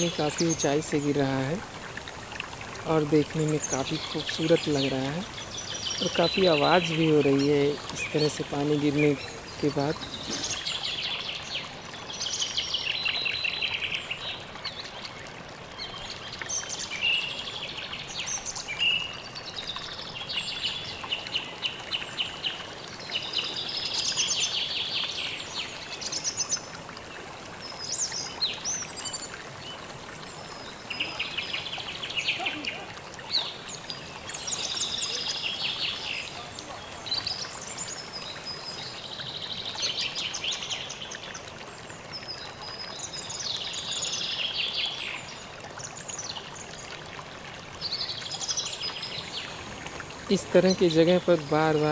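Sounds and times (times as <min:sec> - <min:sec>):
waterfall rushing: 0:00.0 - 0:10.7, 0:49.0 - 0:51.9
songbirds singing and chirping: 0:00.0 - 0:15.1, 0:15.7 - 0:47.0.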